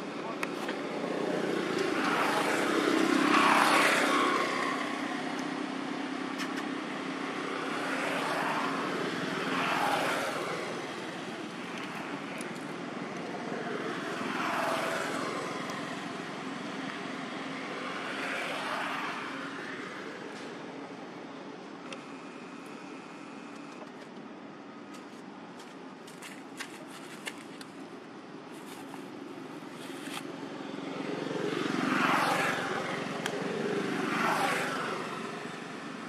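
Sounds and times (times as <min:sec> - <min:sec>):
motor vehicles passing: 0:00.0 - 0:21.2, 0:28.6 - 0:36.0.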